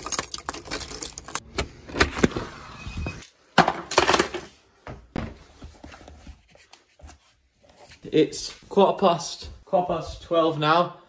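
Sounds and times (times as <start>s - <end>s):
keys jangling in door lock: 0.0s - 1.4s.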